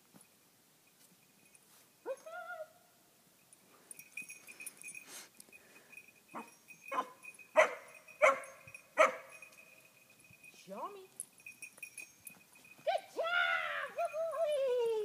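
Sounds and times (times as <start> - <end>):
puppy barking: 6.4 - 9.3.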